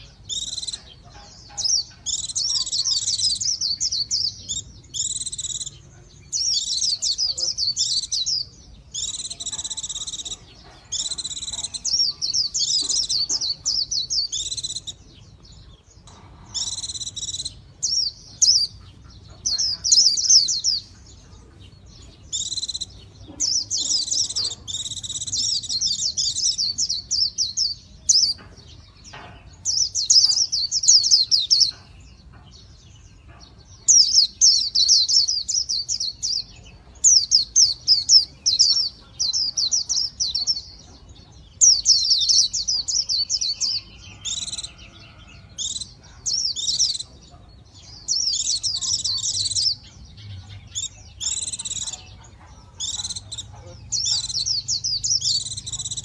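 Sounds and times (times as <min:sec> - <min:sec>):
bird high twittering song: 0:00.0 - 0:56.0.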